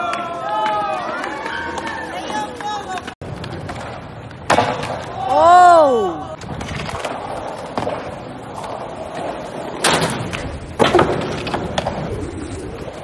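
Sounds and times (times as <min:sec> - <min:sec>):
skateboard wheels rolling on concrete: 0:00.0 - 0:13.0
skateboard clacks and landing thuds: 0:03.2 - 0:05.2, 0:09.2 - 0:12.1.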